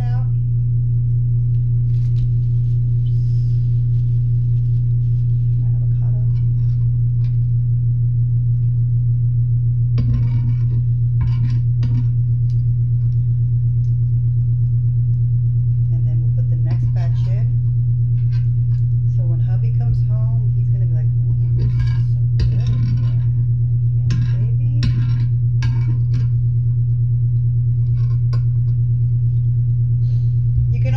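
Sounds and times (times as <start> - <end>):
low electrical hum: 0.0 - 30.9.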